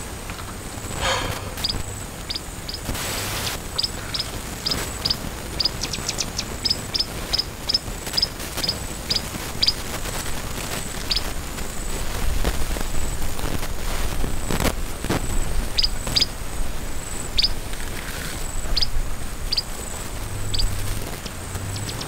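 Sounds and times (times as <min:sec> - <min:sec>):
outdoor rustle and hiss: 0:00.0 - 0:22.0
bird chirping: 0:01.0 - 0:09.8, 0:15.8 - 0:16.3, 0:17.3 - 0:17.6, 0:18.7 - 0:19.7, 0:20.5 - 0:20.8, 0:21.7 - 0:22.0
elephant pulling up grass: 0:17.7 - 0:18.4.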